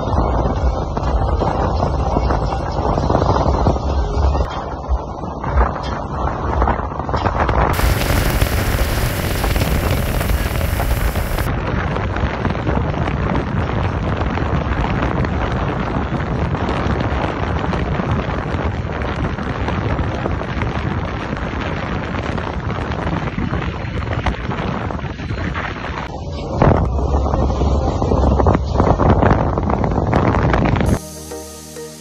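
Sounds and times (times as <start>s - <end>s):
wind rushing on microphone: 0.0s - 31.0s
boat engine drone: 7.8s - 11.5s
water hissing along hull: 7.8s - 11.5s.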